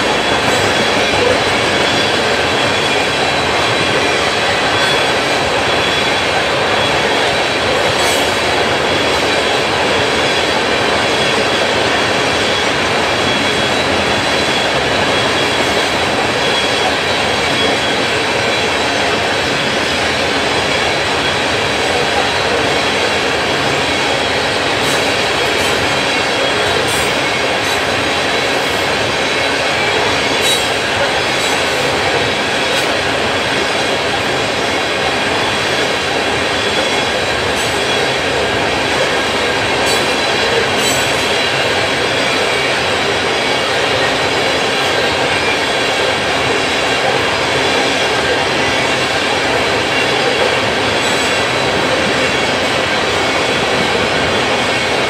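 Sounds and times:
freight train rumbling past: 0:00.0 - 0:55.0
wheel squeal: 0:00.1 - 0:33.6.

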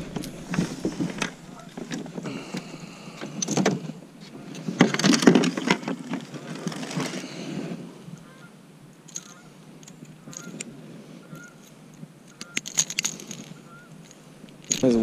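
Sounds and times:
clothing and gear rustling: 0:00.0 - 0:08.0.

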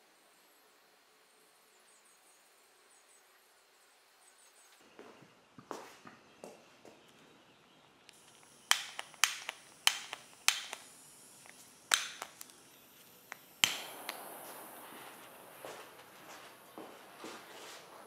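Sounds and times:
igniter clicks: 0:08.1 - 0:14.4
torch flame hissing: 0:08.1 - 0:18.0.

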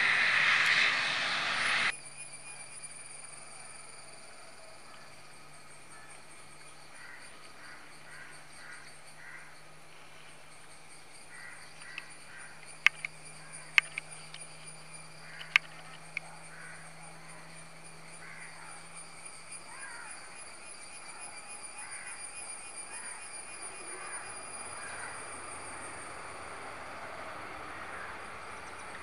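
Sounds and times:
faint high-pitched drone: 0:00.0 - 0:29.0
crows cawing: 0:06.9 - 0:09.6, 0:11.3 - 0:12.6, 0:15.2 - 0:15.7, 0:16.5 - 0:16.8, 0:18.2 - 0:18.7
sharp clicks: 0:11.8 - 0:16.3.

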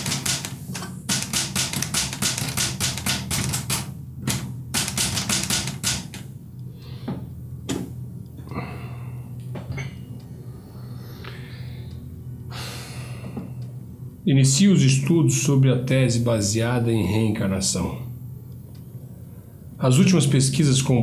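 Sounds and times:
scattered knocks: 0:00.0 - 0:06.2
typewriter keys clattering: 0:00.0 - 0:06.2
low music drone: 0:04.0 - 0:21.0.

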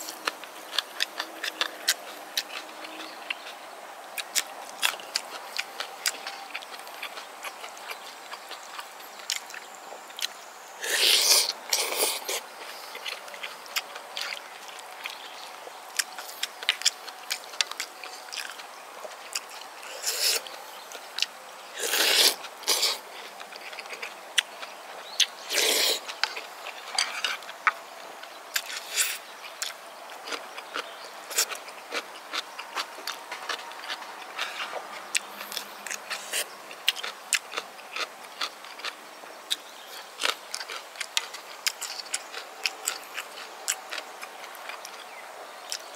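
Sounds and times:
close chewing: 0:00.0 - 0:45.9
slurping: 0:10.8 - 0:13.2, 0:19.3 - 0:20.5, 0:21.8 - 0:23.1, 0:25.5 - 0:26.1.

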